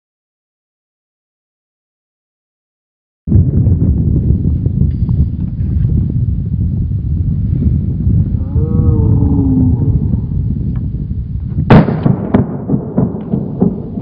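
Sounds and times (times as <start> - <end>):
wind buffeting microphone: 3.3 - 14.0.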